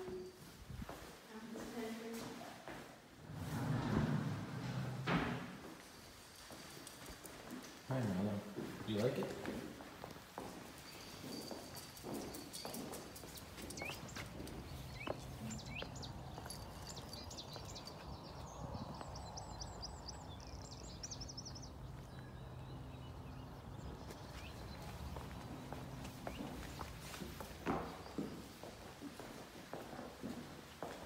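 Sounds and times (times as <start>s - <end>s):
footsteps: 0.0s - 18.1s, 24.0s - 31.0s
small birds chirping: 10.8s - 28.6s.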